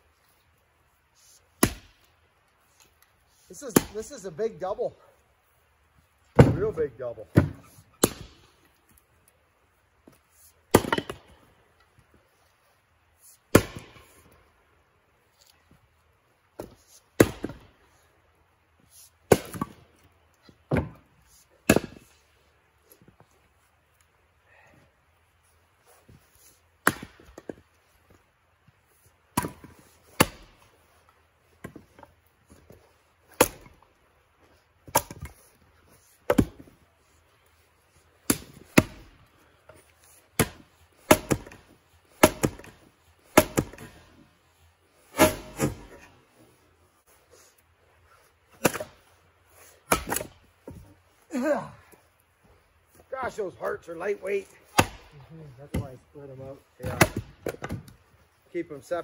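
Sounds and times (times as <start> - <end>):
axes splitting wood: 1.5 - 2.1, 2.8 - 4.2, 6.2 - 8.8, 10.0 - 12.1, 13.3 - 14.3, 16.5 - 17.7, 19.1 - 19.8, 20.4 - 22.3, 25.9 - 28.2, 29.3 - 33.9, 34.8 - 44.2, 45.1 - 46.4, 48.2 - 52.0, 54.4 - 56.0, 56.8 - 58.0.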